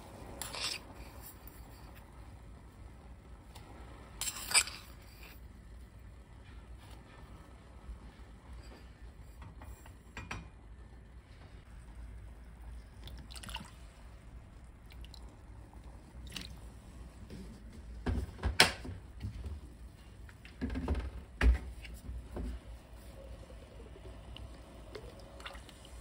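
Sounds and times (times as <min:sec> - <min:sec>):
small liquid splashes: 0:13.0 - 0:13.9, 0:16.2 - 0:16.6, 0:25.0 - 0:26.0.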